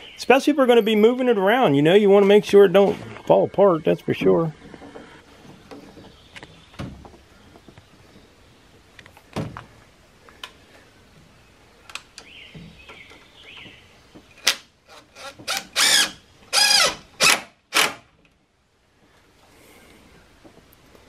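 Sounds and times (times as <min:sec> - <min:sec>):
impact driver driving screw into wood: 0:14.4 - 0:18.1.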